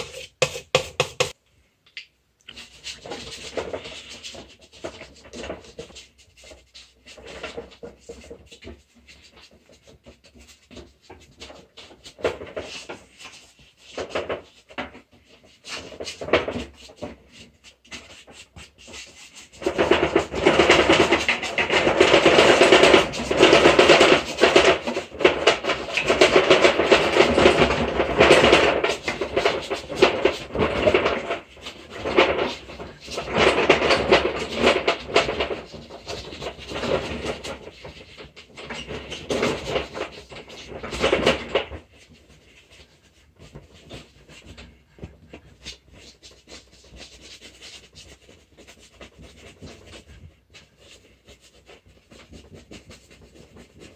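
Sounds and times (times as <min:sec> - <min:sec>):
paintbrush scrubbing on canvas: 0:00.0 - 0:01.4.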